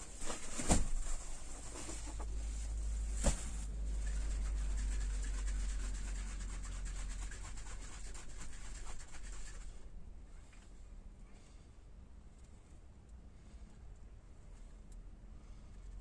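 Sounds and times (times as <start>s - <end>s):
steady low rumble: 0.0s - 7.3s
spray can scratchy rubbing: 3.9s - 9.7s.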